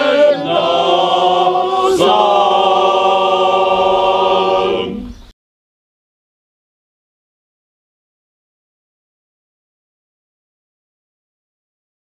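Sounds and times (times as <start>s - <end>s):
male choir singing a cappella: 0.0s - 5.3s.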